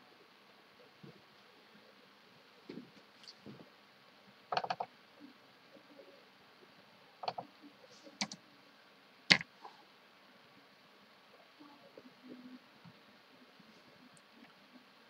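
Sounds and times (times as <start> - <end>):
computer mouse clicks: 4.5 - 4.9, 7.2 - 7.4, 8.2 - 8.4
keyboard clicks: 4.5 - 4.9, 7.2 - 7.4, 8.2 - 8.4.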